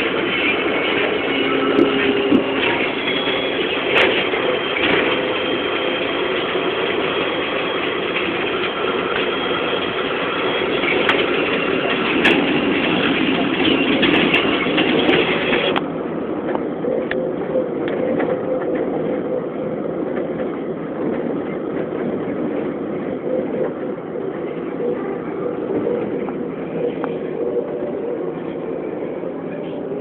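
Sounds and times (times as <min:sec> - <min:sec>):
bus engine and road noise: 0:00.0 - 0:30.0
knocks and rattles of bus body: 0:10.8 - 0:17.2, 0:20.0 - 0:24.0.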